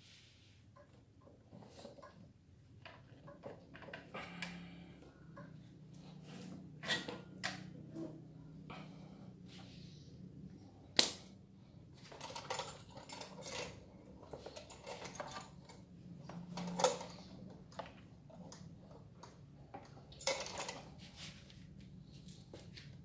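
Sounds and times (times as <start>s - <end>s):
metal clinks and clatter: 12.0s - 17.3s, 20.0s - 21.0s.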